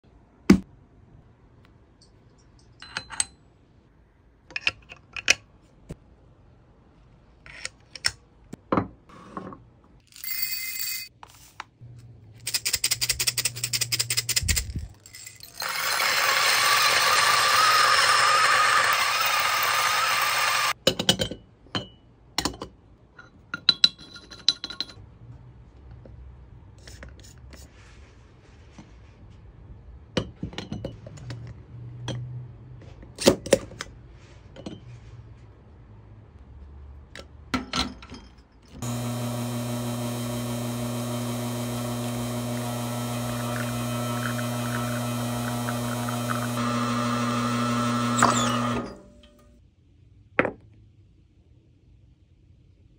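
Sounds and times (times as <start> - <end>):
metal clicks and clinks: 2.0 - 3.4, 12.4 - 15.7
coffee grinder grinding beans: 15.1 - 20.8, 38.8 - 49.4.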